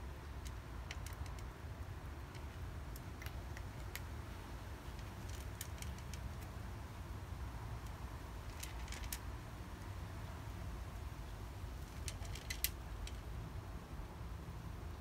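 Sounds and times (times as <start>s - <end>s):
cat crunching dry kibble: 0.4s - 1.6s, 2.2s - 4.2s, 4.8s - 6.6s, 7.8s - 9.2s.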